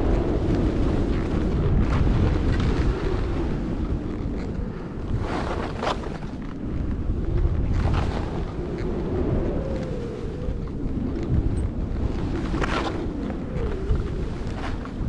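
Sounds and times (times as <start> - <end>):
wind rumble on microphone: 0.0 - 15.0
edges scraping on snow: 5.1 - 6.4.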